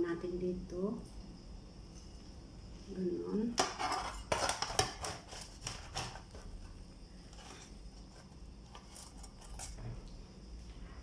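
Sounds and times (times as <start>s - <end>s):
spatula scraping metal pan: 3.6s - 6.4s.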